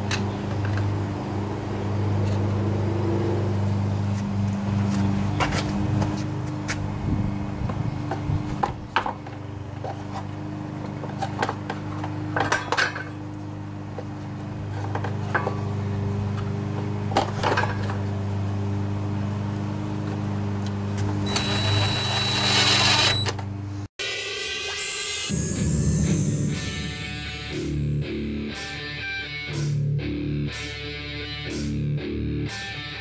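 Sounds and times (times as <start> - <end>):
cordless drill whirring: 21.2 - 23.4.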